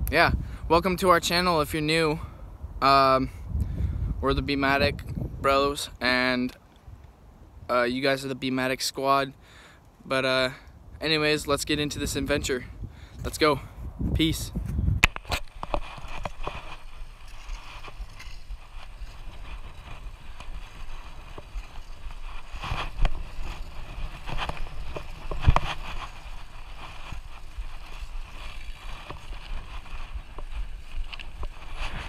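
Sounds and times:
wind buffeting microphone: 0.0 - 6.0, 10.8 - 32.0
wheels rolling on asphalt: 15.0 - 32.0.

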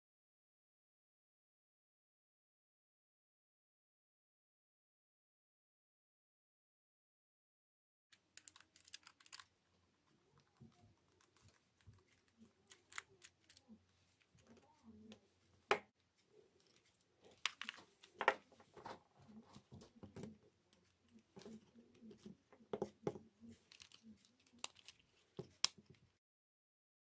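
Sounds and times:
plastic shaver body handled: 8.4 - 9.5, 10.3 - 26.1.

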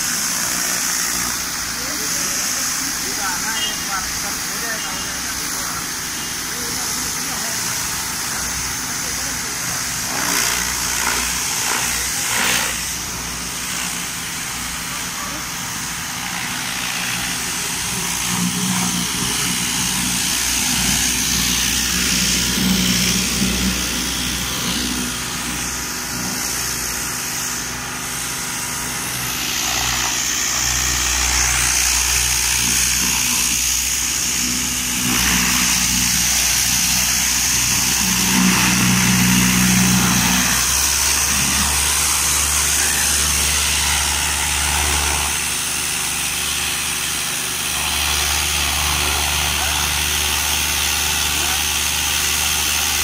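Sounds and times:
water jet hissing against car: 0.0 - 10.1
pressure washer motor hum: 0.0 - 53.0.

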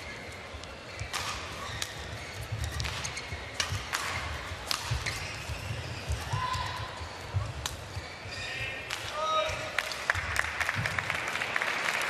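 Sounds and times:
low rumble of large hall: 0.0 - 12.0
rackets hitting shuttlecock: 0.9 - 6.8.

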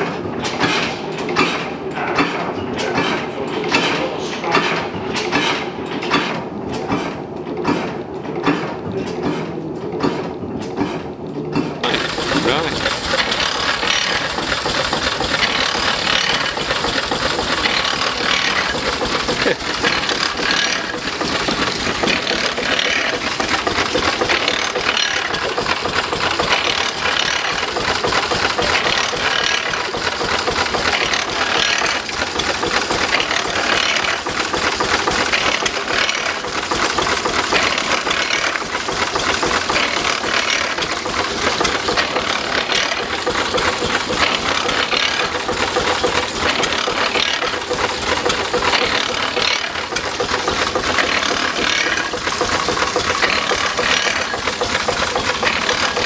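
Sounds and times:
water pump clatter: 0.0 - 56.0
stationary engine running: 11.8 - 56.0.

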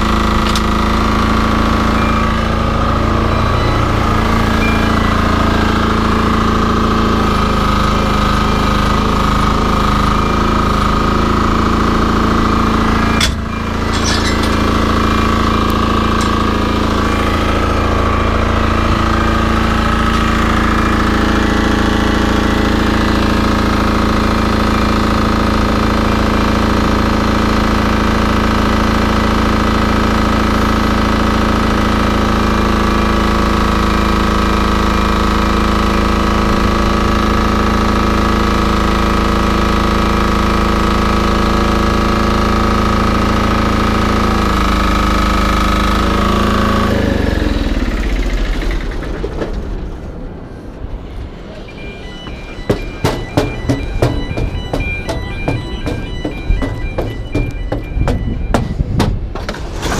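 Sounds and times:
diesel engine rattling: 0.0 - 59.9
short knock: 52.7 - 59.5.

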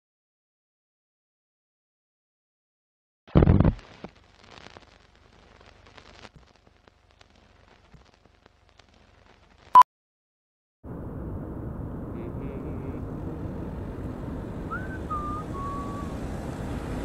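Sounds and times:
faint film crackle and clicks: 3.3 - 9.8.

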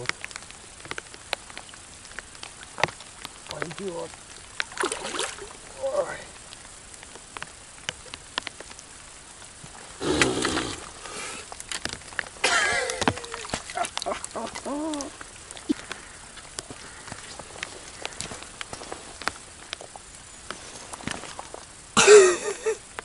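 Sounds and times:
rain pattering: 0.0 - 23.0
fish splashing at water surface: 4.6 - 5.6, 10.0 - 16.2.

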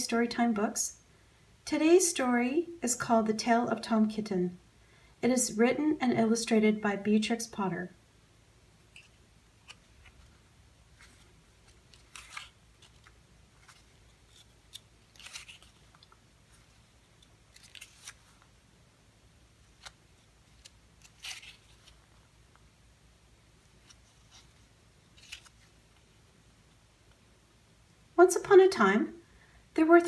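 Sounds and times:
paper rustling and snapping: 11.0 - 16.2, 17.5 - 18.5, 19.8 - 22.1, 25.2 - 25.7.

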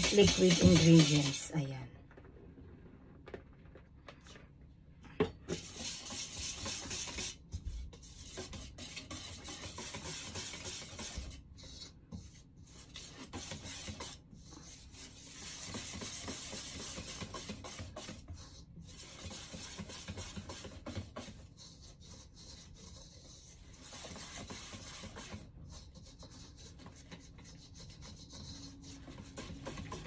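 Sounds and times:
whisk scraping metal bowl: 0.0 - 1.6, 5.5 - 30.0.

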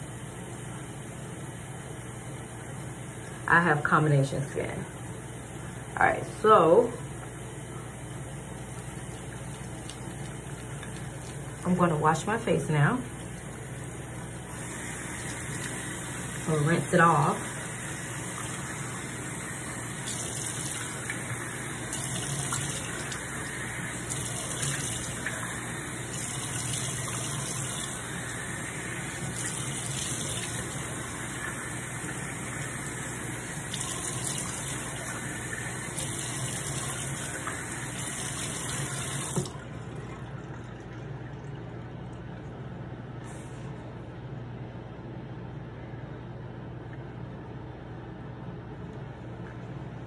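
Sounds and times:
sink tap running: 6.7 - 40.2.

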